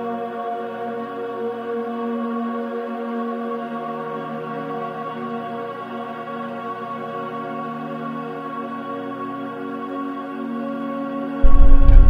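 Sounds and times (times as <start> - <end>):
ambient synthesizer music: 11.4 - 12.0.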